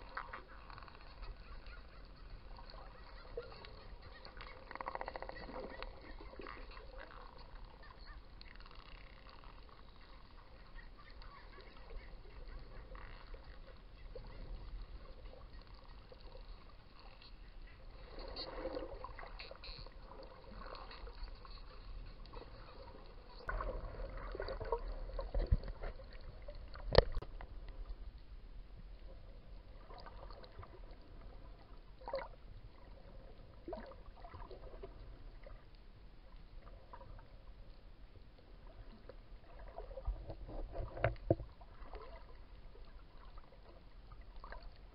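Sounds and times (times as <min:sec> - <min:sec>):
underwater rushing water: 0:17.8 - 0:35.6.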